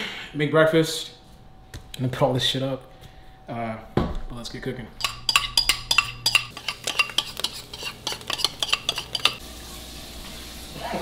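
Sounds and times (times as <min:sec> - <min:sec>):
metal fork scraping a bowl: 0:05.0 - 0:09.4
frying sizzle: 0:06.4 - 0:11.0.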